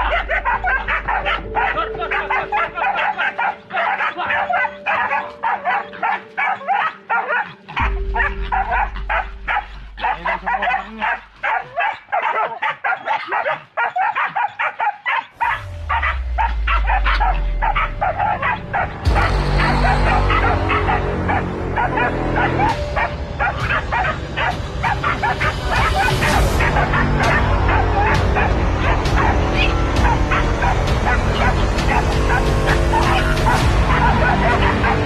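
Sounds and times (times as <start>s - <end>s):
dogs barking and yipping: 0.0s - 35.0s
low rumble: 15.4s - 35.0s.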